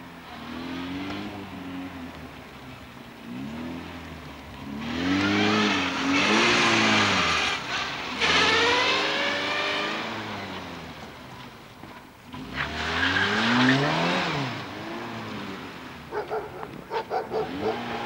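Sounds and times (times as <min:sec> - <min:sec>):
car engine revving: 0:03.2 - 0:11.1, 0:12.3 - 0:18.0.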